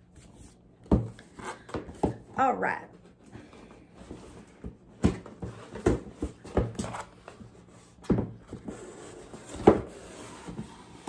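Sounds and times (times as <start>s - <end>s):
cardboard box knocks and scrapes: 4.0s - 11.0s.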